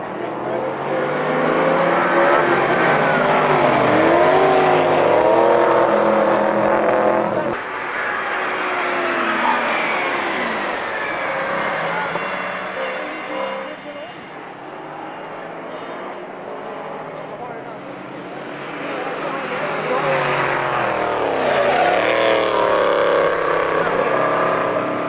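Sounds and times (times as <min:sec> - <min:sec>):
distant car revving: 0:00.0 - 0:25.0
race car engines revving: 0:00.0 - 0:25.0.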